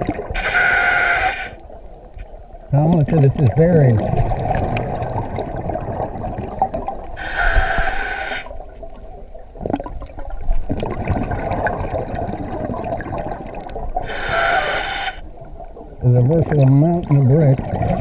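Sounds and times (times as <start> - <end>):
exhaled bubbles rushing: 0.0 - 0.4, 2.8 - 18.0
underwater breathing murmur: 0.4 - 1.6, 7.2 - 8.5, 14.0 - 15.2.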